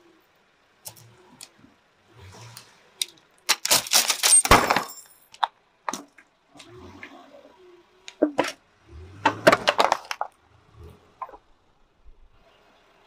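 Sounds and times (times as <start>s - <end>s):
knives clattering and cracking: 3.0s - 5.5s.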